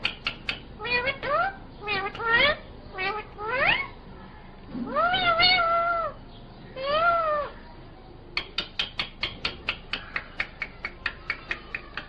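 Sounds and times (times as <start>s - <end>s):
short sharp clicks: 0.0s - 0.6s
parakeet calling: 0.0s - 7.8s.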